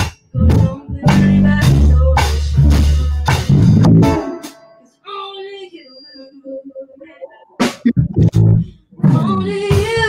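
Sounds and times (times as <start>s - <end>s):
rock band playing: 1.1s - 4.8s.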